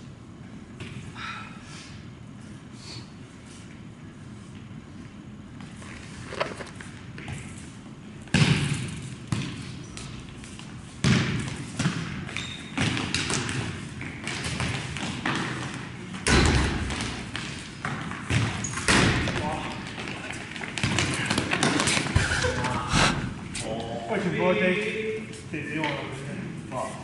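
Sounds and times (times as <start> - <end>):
ball thumping on gym floor: 8.2 - 10.2, 11.0 - 22.5.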